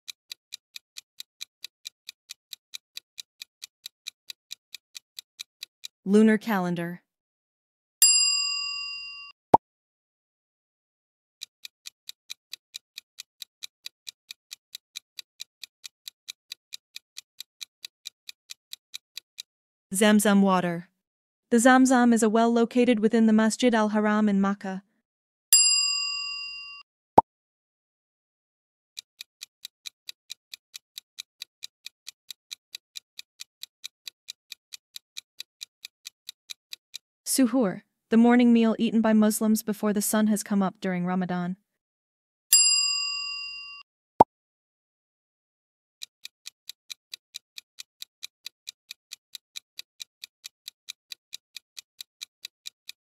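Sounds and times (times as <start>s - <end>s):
clock-like timer ticks: 0.1s - 6.0s, 11.4s - 19.5s, 29.0s - 37.1s, 46.0s - 53.0s.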